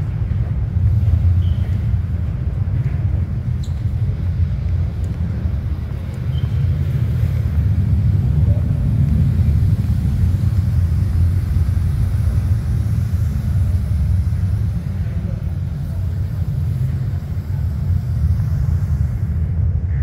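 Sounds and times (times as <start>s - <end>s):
deep rumble of waves: 4.4s - 15.6s.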